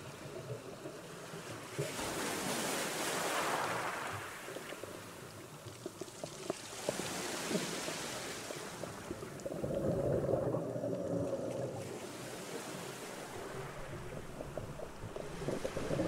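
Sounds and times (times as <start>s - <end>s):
exhaled bubbles burbling: 9.1s - 12.0s, 13.2s - 16.0s.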